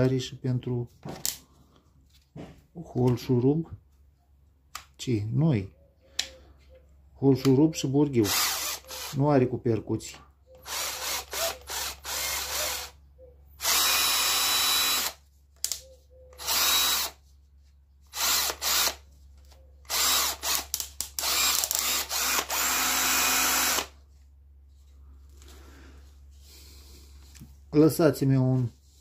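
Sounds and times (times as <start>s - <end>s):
cordless drill running in bursts: 8.2s - 9.2s, 10.6s - 13.0s, 13.6s - 15.2s, 16.4s - 17.2s, 18.1s - 19.0s, 19.9s - 24.0s.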